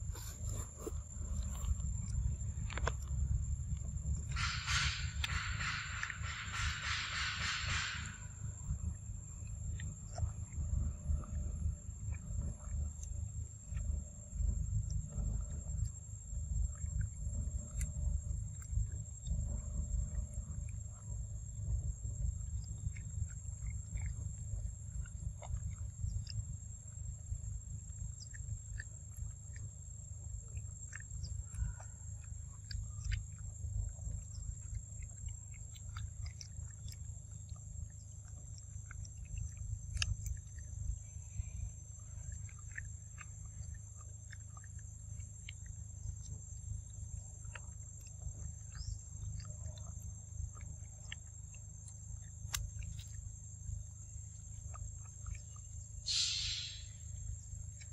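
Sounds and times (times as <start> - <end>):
monkeys chewing fruit: 0.0 - 57.9
high insect-like drone: 56.1 - 57.1.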